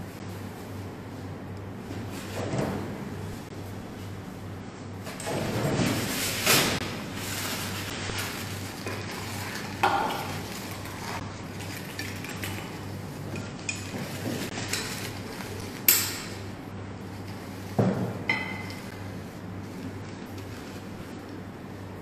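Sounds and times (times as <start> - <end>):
steady low hum: 0.0 - 22.0
plates and utensils clinking: 18.3 - 18.9.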